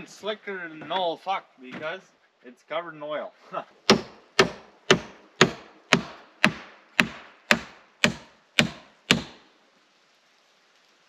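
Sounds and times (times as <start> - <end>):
hammer driving nail into wood: 3.9 - 9.4.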